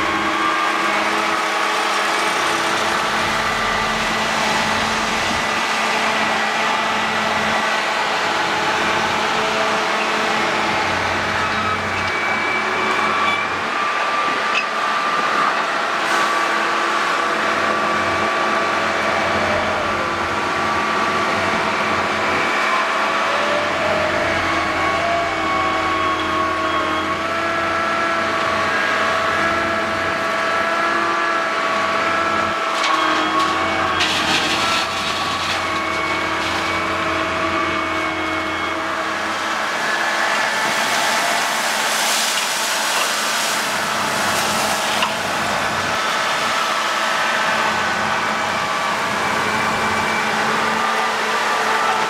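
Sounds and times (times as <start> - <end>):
excavator diesel engine: 0.0 - 52.0
truck engines running: 0.0 - 52.0
gravel pouring into steel tipper: 32.8 - 37.0, 40.8 - 45.4.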